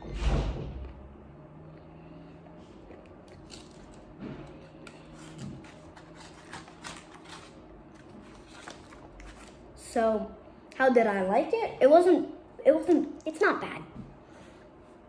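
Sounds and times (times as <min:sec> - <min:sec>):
person chewing hard treat: 0:01.7 - 0:09.4.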